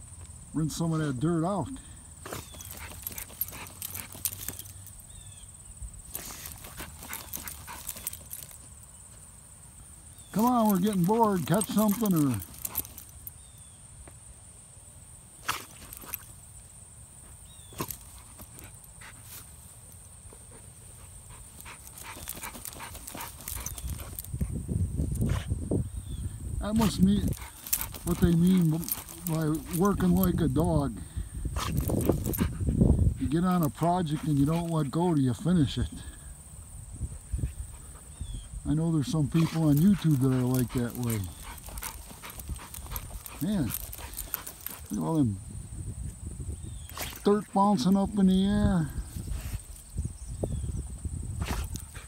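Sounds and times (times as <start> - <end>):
crickets chirring: 0.0 - 52.0
dog digging in soil: 2.2 - 5.3, 6.0 - 8.9, 10.2 - 13.4, 15.4 - 16.4, 17.4 - 35.8, 38.7 - 45.4, 51.4 - 52.0.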